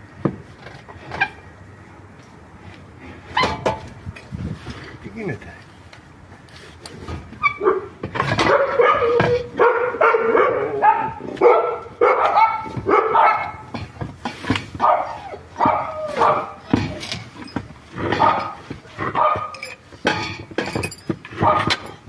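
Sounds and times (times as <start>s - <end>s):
dog barking: 7.6s - 13.7s, 14.8s - 16.6s, 18.2s - 18.6s, 19.2s - 19.6s, 21.4s - 21.8s.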